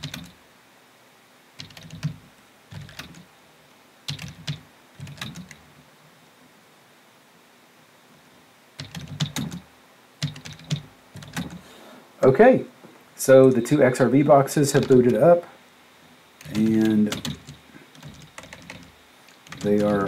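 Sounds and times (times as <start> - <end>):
computer keyboard typing: 0.0 - 0.4, 1.6 - 3.3, 4.1 - 5.6, 8.8 - 11.6, 14.8 - 15.3, 16.4 - 20.0.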